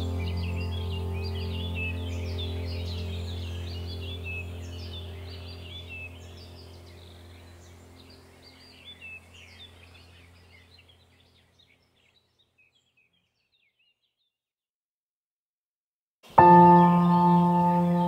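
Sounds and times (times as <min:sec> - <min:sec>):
steady low hum: 0:00.0 - 0:11.6
birds chirping: 0:00.0 - 0:14.4, 0:16.3 - 0:18.0.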